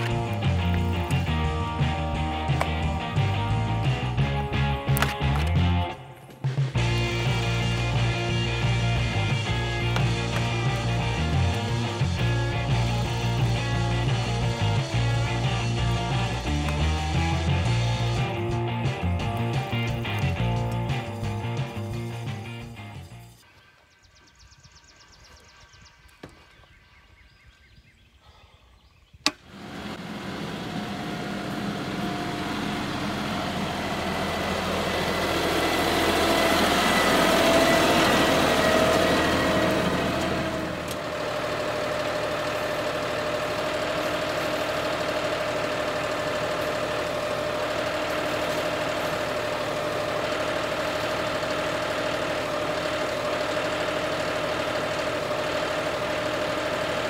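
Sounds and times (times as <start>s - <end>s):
constant whine: 0.0s - 27.2s, 29.2s - 57.0s
tractor diesel engine running: 0.0s - 28.4s, 29.2s - 57.0s.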